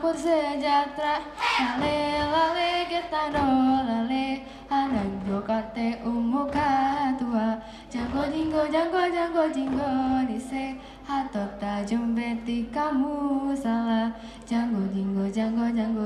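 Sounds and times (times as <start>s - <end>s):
group chanting in unison: 1.1s - 2.9s.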